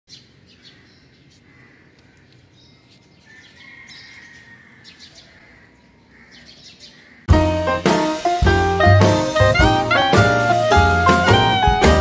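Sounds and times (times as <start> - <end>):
birds chirping faintly: 0.1 - 7.3.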